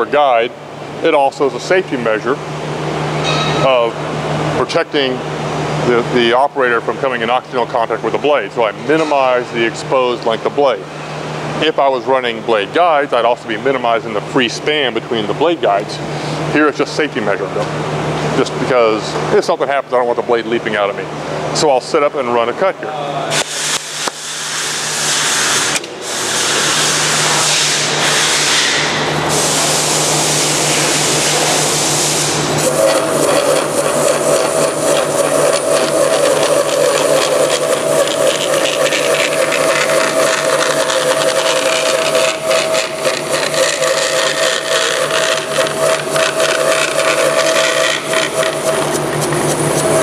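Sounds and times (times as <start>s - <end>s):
steady ringing tone: 3.2s - 4.0s
bandsaw cutting board: 23.4s - 50.0s
bandsaw running: 23.4s - 50.0s.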